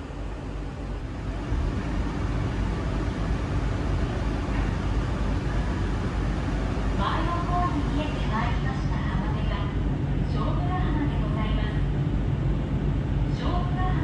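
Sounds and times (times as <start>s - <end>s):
boat engine running: 0.8s - 8.9s
wind and water rushing: 0.9s - 9.0s.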